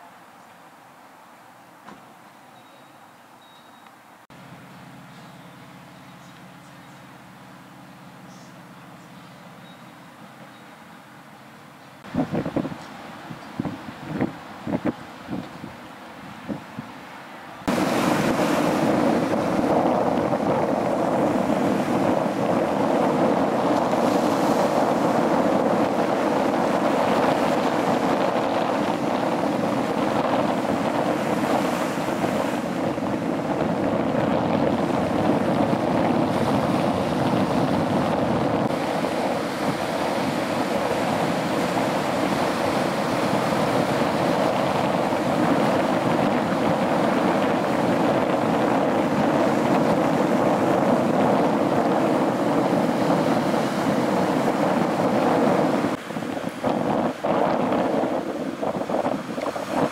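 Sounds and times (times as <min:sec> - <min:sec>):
wind on microphone: 0:12.0 - 0:17.0, 0:17.6 - 0:59.9
waves washing over rocks: 0:17.6 - 0:59.9.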